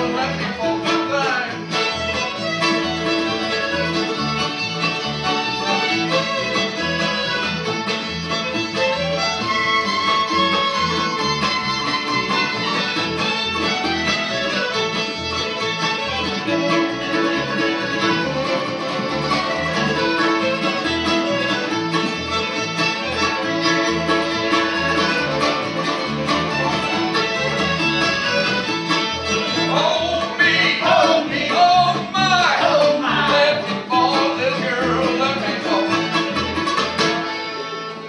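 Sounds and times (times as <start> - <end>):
acoustic guitars: 0.0 - 38.0
bass: 0.0 - 38.0
fiddle: 0.0 - 38.0
mandolin: 0.0 - 38.0
button accordion: 1.6 - 29.7.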